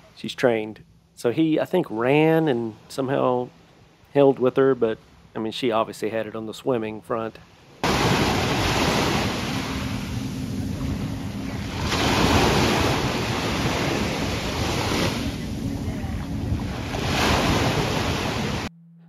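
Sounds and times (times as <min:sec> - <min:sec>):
surf washing onto beach: 0:07.8 - 0:18.7
wind buffeting microphone: 0:07.8 - 0:18.7.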